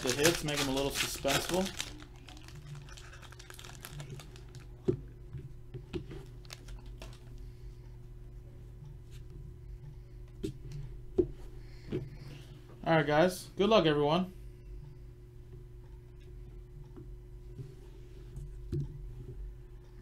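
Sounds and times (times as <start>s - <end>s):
foil wrapper crinkling and tearing: 0.0s - 4.7s, 6.3s - 7.3s
steady low hum: 0.0s - 20.0s.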